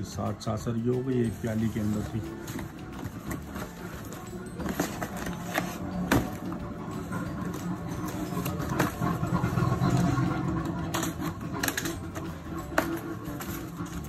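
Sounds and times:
cardboard boxes knocking and scraping: 1.9 - 6.5.

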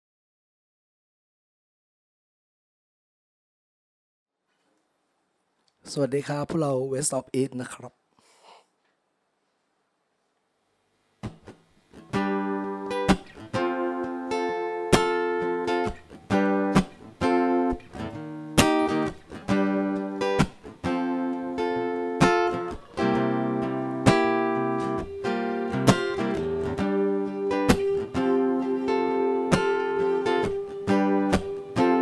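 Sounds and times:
acoustic guitars strumming chords: 11.2 - 32.0.

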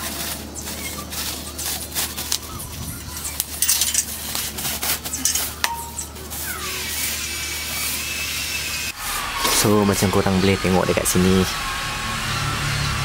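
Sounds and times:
bubble wrap crinkling: 0.0 - 7.2
metal pipe clinking: 5.2 - 6.1.

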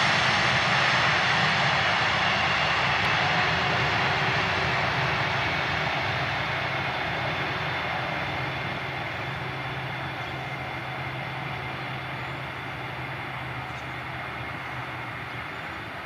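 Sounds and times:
jet engines roaring: 0.0 - 16.0.

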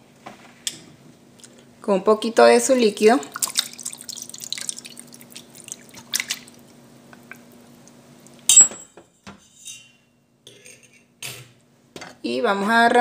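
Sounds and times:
low steady hum: 0.0 - 13.0
wet drips and small clicks: 3.3 - 8.5.

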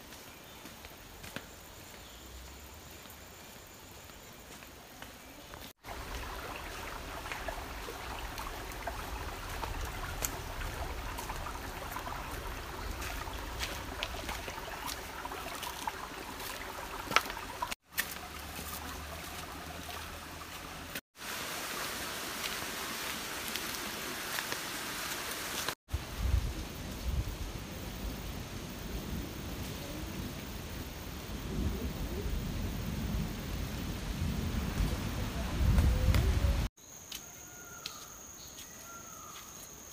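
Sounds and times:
footsteps on stream stones: 0.0 - 2.1, 4.0 - 21.0, 22.0 - 25.8
stream trickling over rocks: 5.5 - 27.2.

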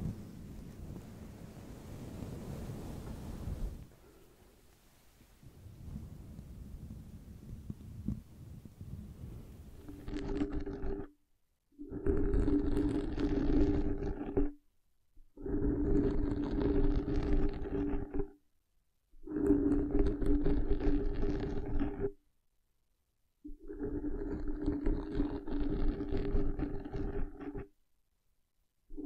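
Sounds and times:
fingertips scratching microphone: 6.8 - 11.2, 11.8 - 14.6, 15.4 - 18.4, 19.2 - 22.2, 23.5 - 27.7.

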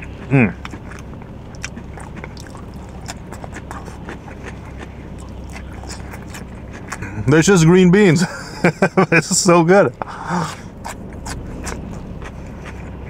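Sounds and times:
chewing crunchy food: 0.0 - 7.1, 10.6 - 13.0
low steady hum: 0.0 - 13.0.

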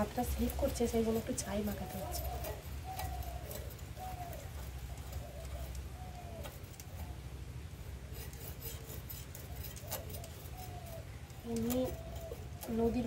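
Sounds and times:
dove cooing: 0.0 - 13.0
fish scales scraped on blade: 8.0 - 11.0.

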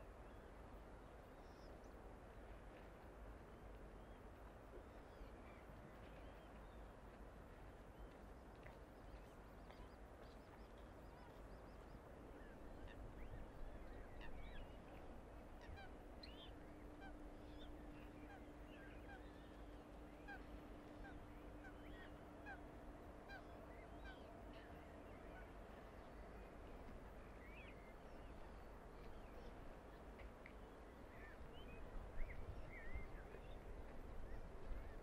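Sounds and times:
waterbird calls: 12.4 - 25.5.

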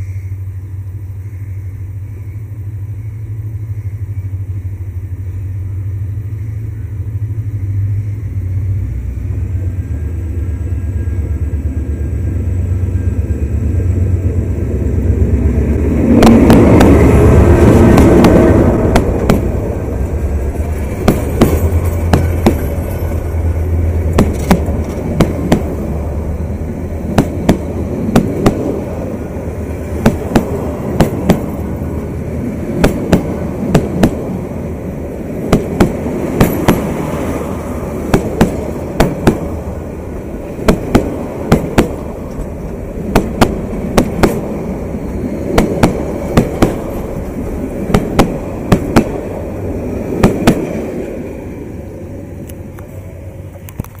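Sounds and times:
train low rumble: 0.0 - 54.0
train wheels clacking over rail joints: 16.1 - 26.0, 27.1 - 28.9, 29.8 - 34.4, 35.4 - 37.4, 38.0 - 39.6, 40.4 - 50.9.

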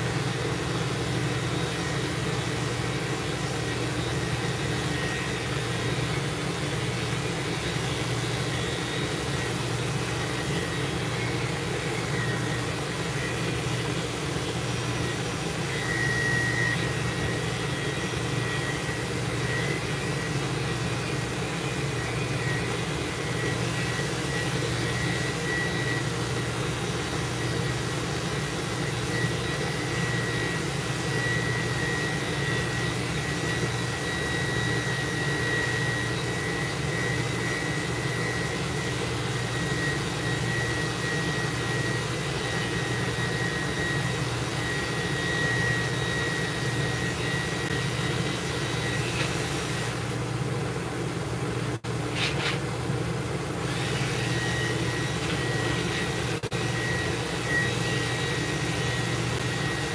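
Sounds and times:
thin high whistle: 15.0 - 50.0, 53.8 - 59.9.

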